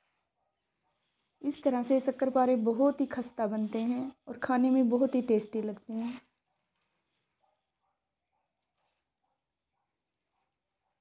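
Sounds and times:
woman's voice: 0:01.4 - 0:06.3.

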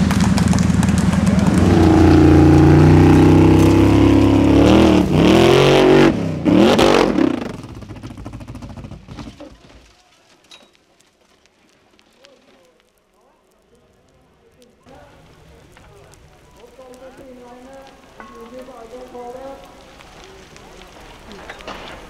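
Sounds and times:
buggy engine revving: 0:00.0 - 0:09.4.

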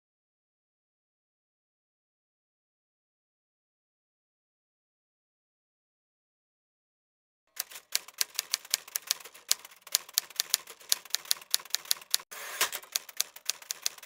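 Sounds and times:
typewriter keys clacking: 0:07.5 - 0:14.0.

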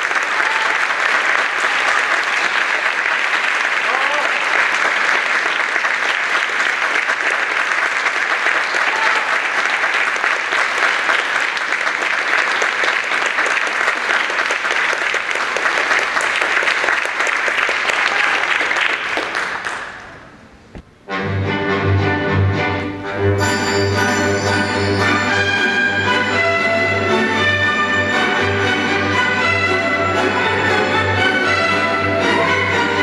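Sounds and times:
audience applauding: 0:00.0 - 0:20.3.

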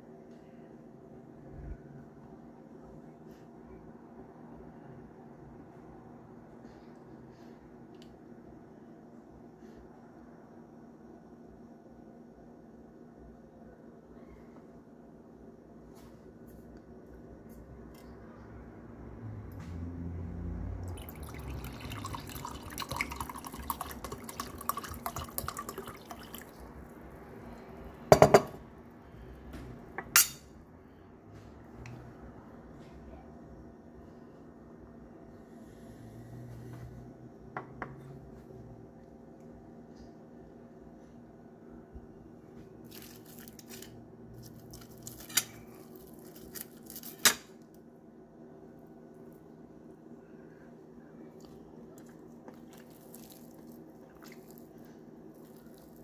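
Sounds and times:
wine pouring into glass: 0:20.9 - 0:26.7
fried fish skin crackling and tearing: 0:42.9 - 0:47.2.

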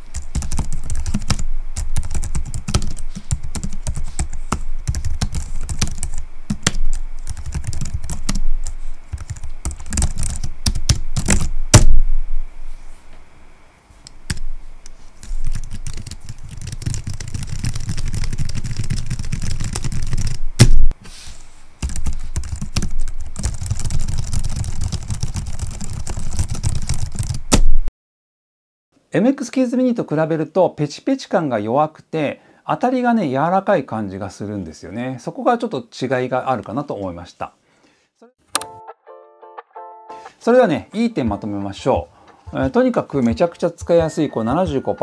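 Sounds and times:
typing on a keyboard: 0:00.1 - 0:11.5, 0:15.2 - 0:20.4, 0:21.8 - 0:27.4.

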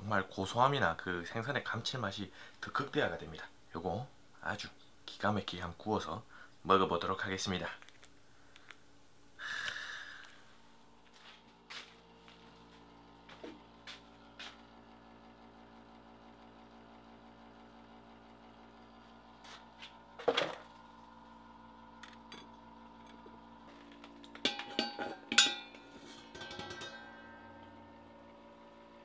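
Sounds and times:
faint steady hum: 0:00.0 - 0:29.0
steel stove lid clanking: 0:24.4 - 0:27.5.

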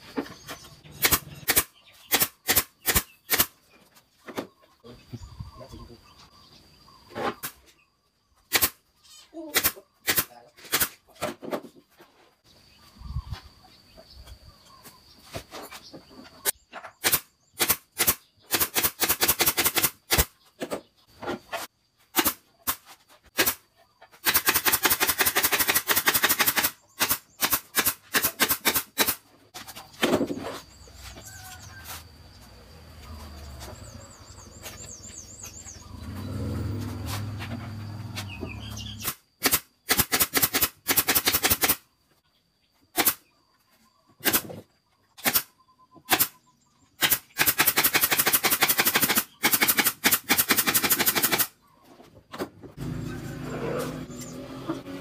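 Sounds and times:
nail gun firing: 0:01.0 - 0:03.6, 0:08.5 - 0:08.8, 0:09.5 - 0:11.0, 0:17.0 - 0:20.3, 0:22.1 - 0:22.8, 0:23.4 - 0:23.6, 0:24.2 - 0:29.2, 0:39.0 - 0:41.8, 0:43.0 - 0:43.2, 0:44.2 - 0:44.6, 0:45.2 - 0:45.5, 0:46.1 - 0:46.4, 0:47.0 - 0:51.5.

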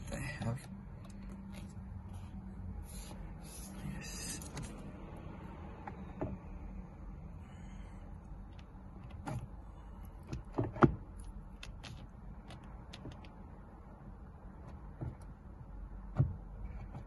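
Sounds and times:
steady low hum: 0:00.0 - 0:17.0
steering wheel clicks and knocks: 0:05.8 - 0:06.4, 0:08.4 - 0:13.5, 0:14.4 - 0:17.0.

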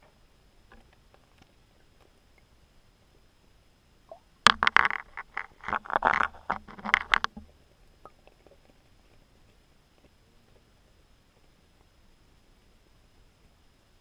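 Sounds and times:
underwater knocks and rattles: 0:04.4 - 0:09.6.

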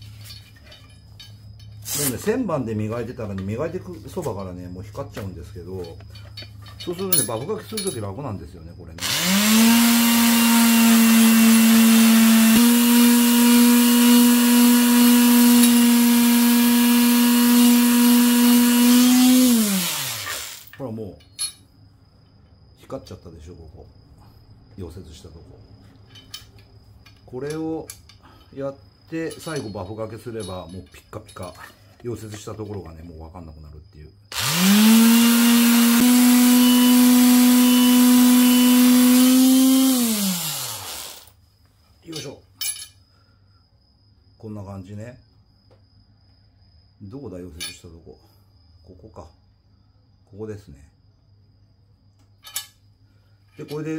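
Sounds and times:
lathe motor whining: 0:12.4 - 0:20.6, 0:34.3 - 0:41.3
lathe motor hum: 0:34.4 - 0:41.3.

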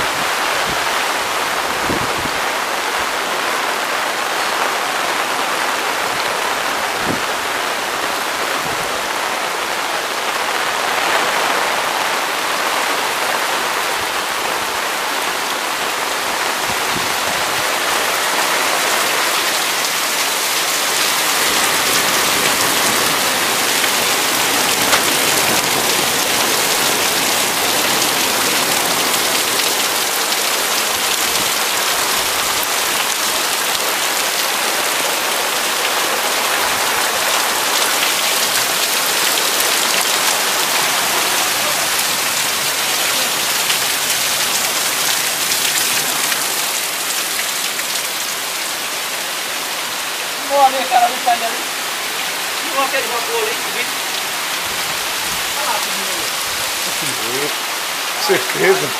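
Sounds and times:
heavy rain hissing: 0:00.0 - 0:58.9.

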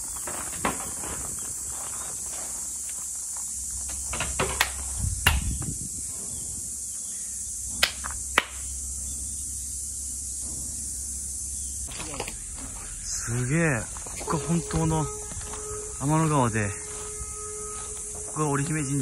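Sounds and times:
cicadas droning: 0:00.0 - 0:19.0
hand claps: 0:07.8 - 0:08.6.

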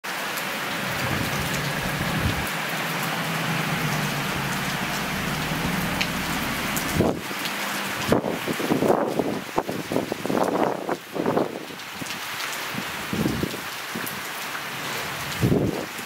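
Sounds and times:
heavy rain on roofs: 0:00.0 - 0:16.0
faint low hum: 0:00.8 - 0:07.2.

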